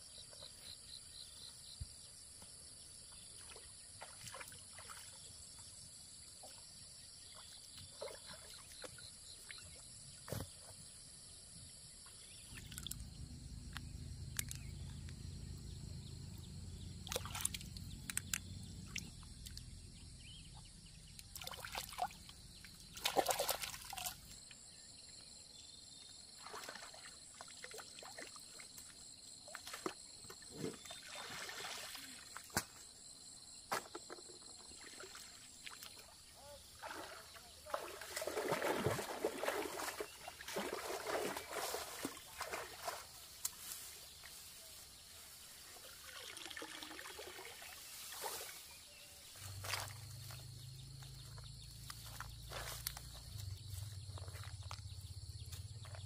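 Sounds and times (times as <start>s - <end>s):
water splashing and trickling: 3.0s - 9.8s, 12.4s - 14.8s, 16.8s - 24.6s, 26.1s - 32.8s, 33.8s - 54.8s.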